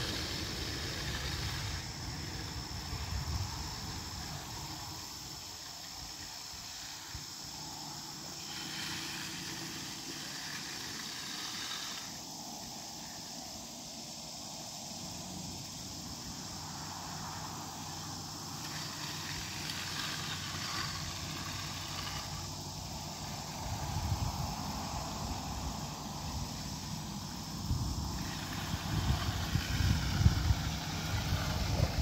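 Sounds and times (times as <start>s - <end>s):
float scraping wet concrete: 0.0s - 3.1s, 6.1s - 12.2s, 18.5s - 23.6s, 28.1s - 32.0s.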